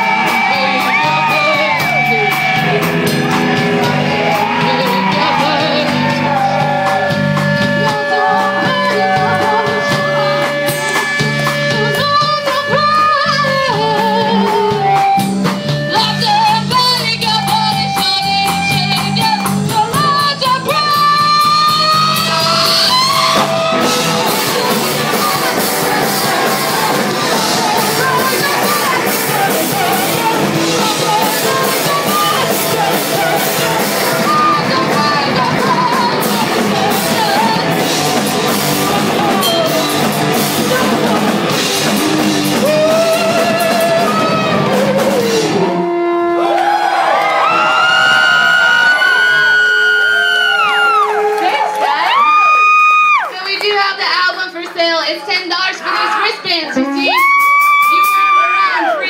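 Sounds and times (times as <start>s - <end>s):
woman singing: 0.0s - 45.8s
drum kit: 0.0s - 51.3s, 57.1s - 59.0s
guitar: 0.0s - 59.0s.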